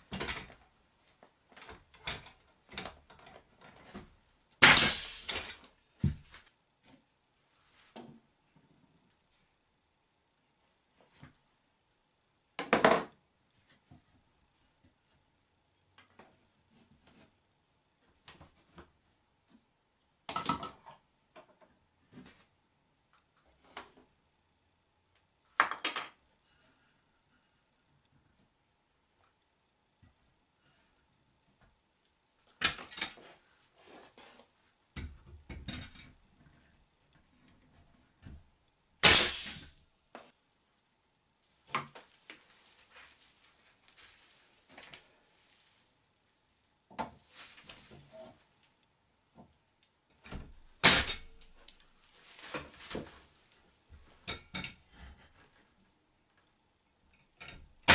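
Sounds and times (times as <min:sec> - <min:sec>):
nail gun firing: 0:04.6 - 0:05.5, 0:39.0 - 0:39.7, 0:50.8 - 0:51.5
scraping rustle: 0:42.0 - 0:46.0.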